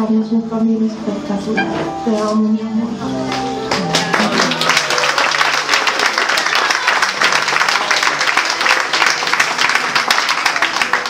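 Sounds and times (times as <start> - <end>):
crowd applauding: 3.3 - 11.0.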